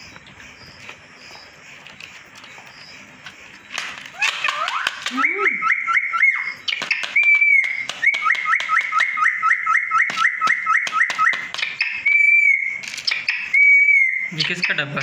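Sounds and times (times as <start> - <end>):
parakeet whistling: 2.5 - 15.0
sharp clicks: 6.6 - 9.2.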